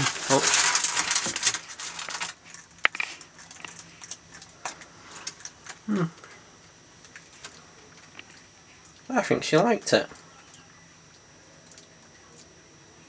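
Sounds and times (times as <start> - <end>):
person humming briefly: 5.8 - 6.3.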